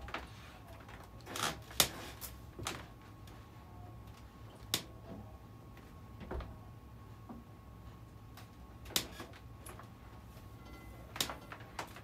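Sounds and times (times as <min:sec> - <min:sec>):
ceiling fan humming: 0:00.0 - 0:12.0
fan clicks and knocks: 0:08.3 - 0:09.9, 0:11.1 - 0:12.0.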